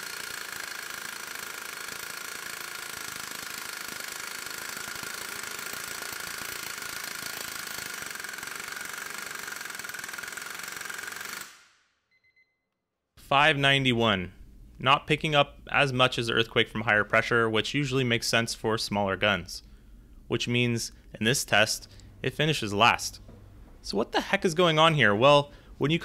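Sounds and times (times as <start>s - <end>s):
pneumatic impact wrench hammering: 0.0s - 11.7s.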